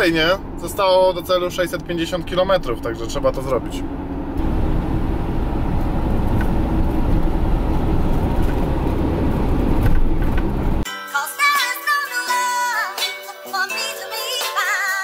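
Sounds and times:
van road and engine noise: 0.0s - 10.9s
music with melody line: 10.8s - 15.0s.

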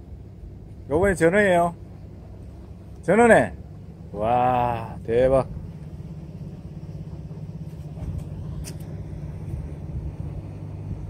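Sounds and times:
low mechanical rumble: 0.0s - 11.0s.

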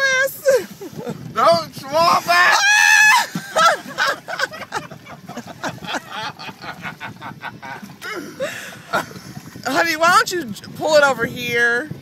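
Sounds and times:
people laughing hard: 2.3s - 9.5s.

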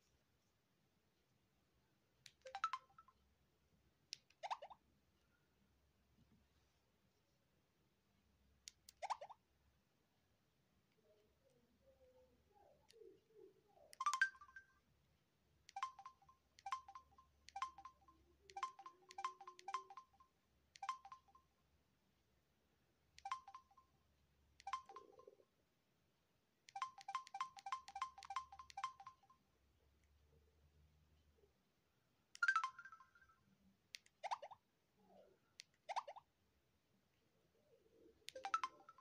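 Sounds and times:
phone keypad beeps: 14.0s - 14.7s, 15.7s - 21.4s, 23.2s - 23.8s, 24.6s - 25.4s, 26.7s - 29.4s, 38.3s - 39.0s.

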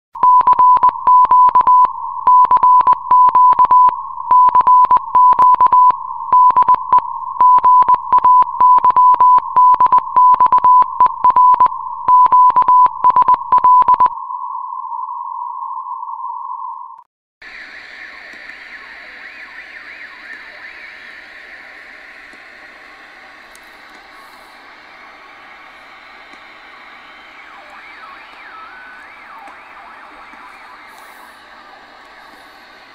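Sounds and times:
morse code beeps: 0.2s - 14.1s
radio hiss with whine: 17.4s - 32.9s.

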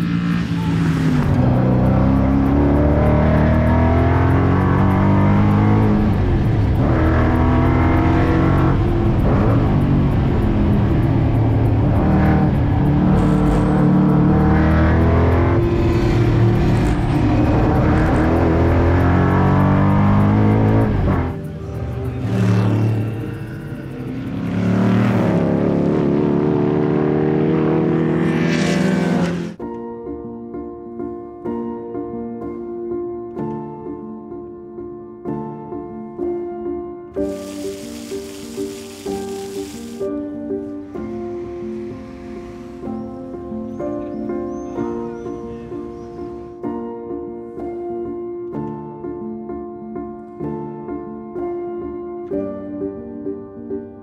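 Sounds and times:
racing car engine revving: 0.0s - 21.4s, 24.3s - 29.6s.

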